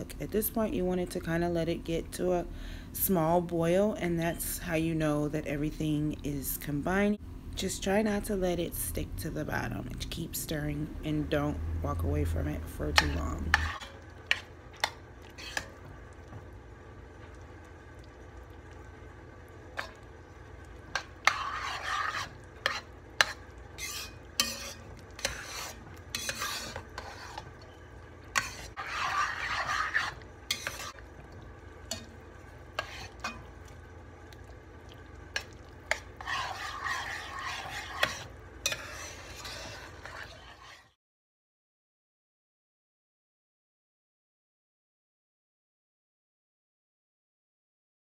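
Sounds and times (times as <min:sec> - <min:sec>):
spoon stirring thick filling: 0:12.4 - 0:18.8, 0:19.4 - 0:41.0.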